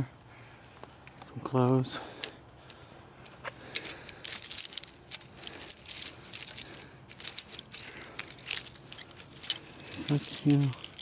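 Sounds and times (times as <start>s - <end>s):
plastic bags crinkling: 3.6s - 11.0s.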